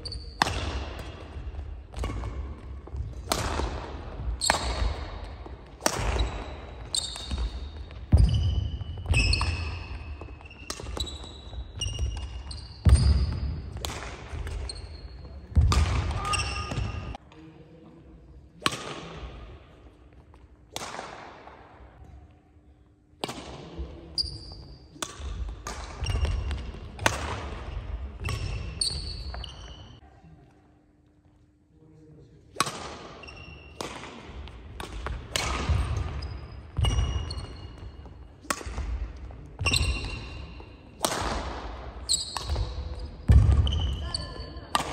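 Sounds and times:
shoe squeaks: 0:00.0 - 0:00.4, 0:06.2 - 0:13.6, 0:14.5 - 0:15.5, 0:16.2 - 0:17.2, 0:24.2 - 0:24.9, 0:28.2 - 0:30.0, 0:33.2 - 0:33.8, 0:35.8 - 0:38.4, 0:39.6 - 0:40.8, 0:42.0 - 0:44.7
racket striking shuttlecock: 0:00.4 - 0:14.8, 0:15.5 - 0:17.1, 0:18.6 - 0:19.4, 0:25.0 - 0:29.4, 0:32.6 - 0:40.4, 0:41.0 - 0:43.6.

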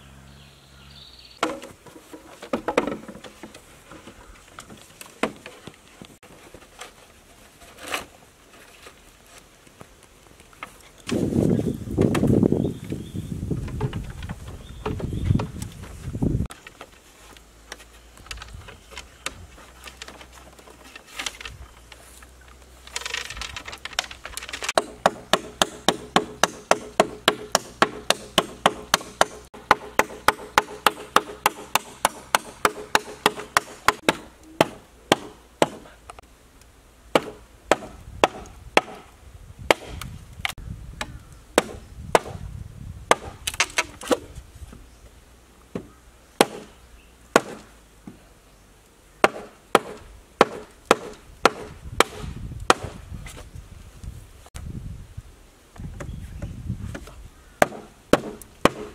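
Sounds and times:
knocks on bamboo: 0:01.4 - 0:03.6, 0:05.2 - 0:05.6, 0:23.0 - 0:35.8, 0:37.1 - 0:39.1, 0:47.4 - 0:48.2, 0:49.2 - 0:53.0, 0:55.9 - 0:58.9
tools chopping bamboo: 0:22.9 - 0:35.9, 0:37.1 - 0:39.1, 0:39.7 - 0:42.4, 0:43.1 - 0:44.3, 0:45.8 - 0:46.7, 0:47.3 - 0:47.7, 0:49.2 - 0:53.0, 0:56.9 - 0:58.9.

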